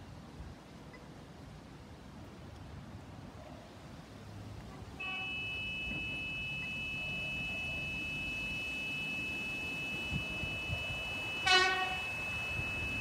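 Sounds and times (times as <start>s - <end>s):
train horn: 4.7s - 13.0s
level crossing bells ringing: 5.0s - 13.0s.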